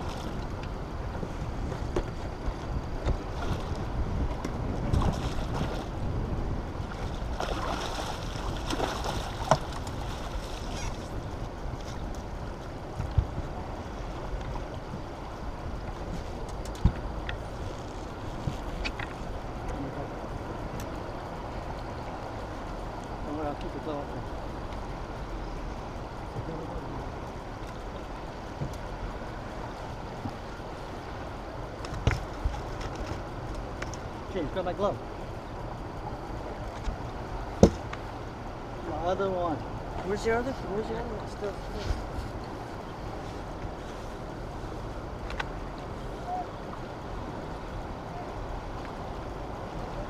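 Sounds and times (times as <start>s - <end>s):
wind on microphone: 0.0s - 22.9s
turbulent water rushing: 2.3s - 11.4s.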